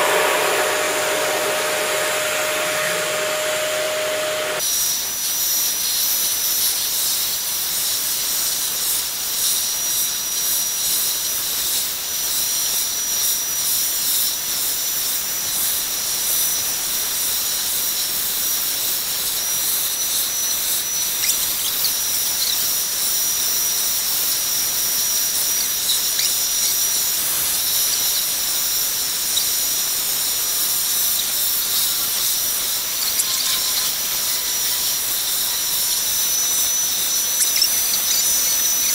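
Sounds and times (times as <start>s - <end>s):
thin high whistle: 0.0s - 4.6s, 31.0s - 38.9s
vacuum cleaner running: 0.0s - 4.6s.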